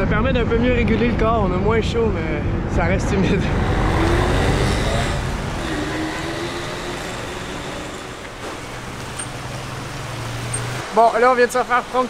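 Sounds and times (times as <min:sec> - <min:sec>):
wind rushing over microphone: 0:00.0 - 0:08.8
road traffic: 0:02.4 - 0:12.0.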